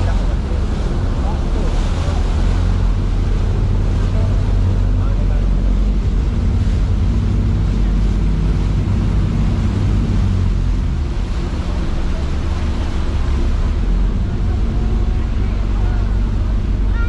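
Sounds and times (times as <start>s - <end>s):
churning water rushing: 0.0s - 17.0s
ship engine rumbling: 0.0s - 17.0s.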